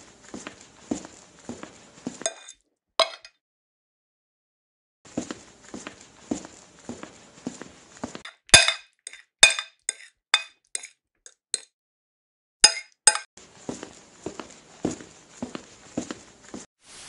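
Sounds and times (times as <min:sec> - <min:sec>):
dishes and cutlery clinking: 0:02.2 - 0:03.3, 0:08.2 - 0:11.7.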